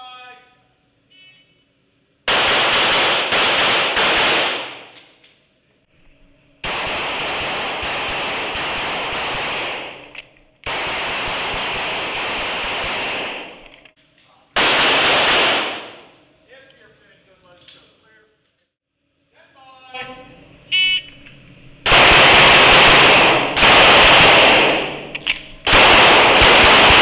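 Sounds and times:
handgun rapid fire: 0:02.3 - 0:05.0, 0:06.6 - 0:13.9, 0:14.6 - 0:16.0, 0:21.9 - 0:27.0.

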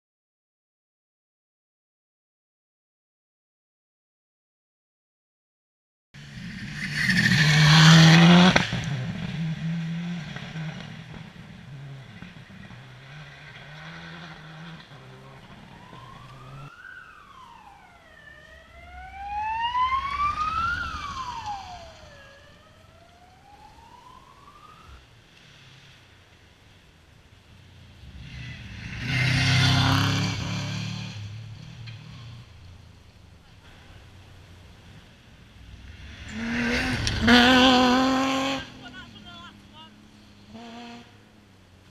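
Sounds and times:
rally car engine passing: 0:06.2 - 0:41.9
siren wailing: 0:14.1 - 0:25.1.

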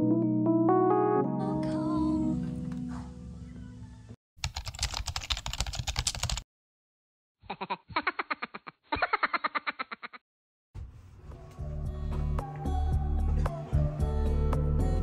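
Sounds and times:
soft background music: 0:00.0 - 0:04.1, 0:11.1 - 0:15.0
computer keyboard typing: 0:04.4 - 0:06.4.

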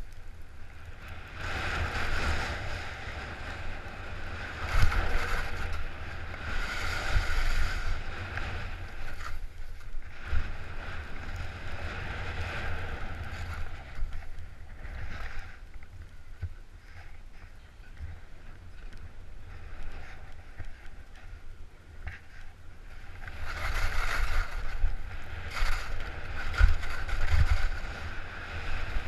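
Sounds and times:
skis sliding through snow: 0:00.0 - 0:29.0
wind rumble on microphone: 0:00.0 - 0:29.0.

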